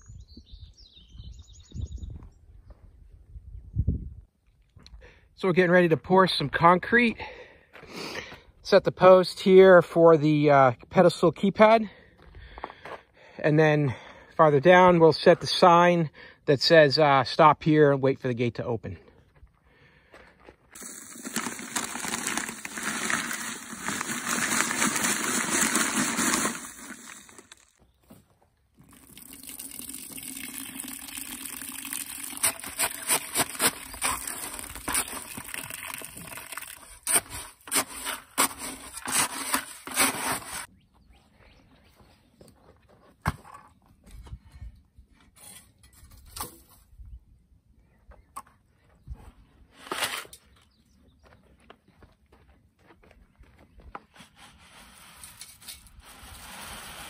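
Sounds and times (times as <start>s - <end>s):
water running into bucket: 20.8s - 27.7s, 28.8s - 37.1s
dry concrete mix pouring: 20.8s - 27.8s, 28.8s - 40.7s, 54.4s - 57.0s
shovel scraping and stirring: 20.8s - 27.8s, 32.2s - 40.7s, 49.7s - 50.5s, 54.1s - 57.0s.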